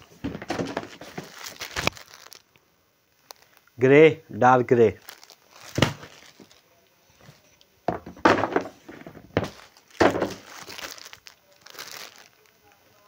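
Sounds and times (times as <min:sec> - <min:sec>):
plastic crinkling: 0:00.0 - 0:03.8, 0:04.8 - 0:13.0
dull knocks of packs: 0:00.2 - 0:02.3, 0:05.0 - 0:06.6, 0:07.9 - 0:12.3.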